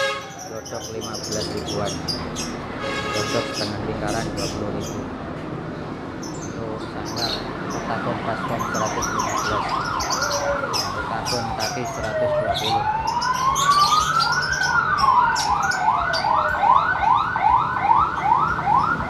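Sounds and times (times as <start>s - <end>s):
caged birds chirping: 0.0s - 19.0s
siren wailing: 7.9s - 19.0s
siren fast yelp: 8.0s - 19.0s.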